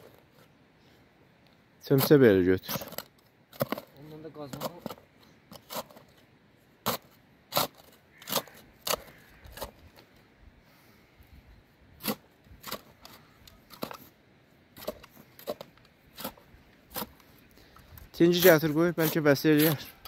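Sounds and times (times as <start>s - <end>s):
metal shovel digging into soil: 1.9s - 6.2s, 6.8s - 10.0s, 11.9s - 17.3s, 18.2s - 20.0s.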